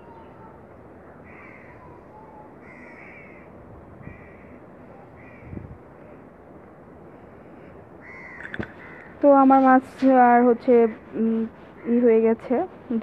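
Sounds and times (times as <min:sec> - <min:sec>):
crow cawing: 0:01.3 - 0:01.9, 0:02.6 - 0:04.6, 0:05.2 - 0:05.6, 0:08.0 - 0:09.2.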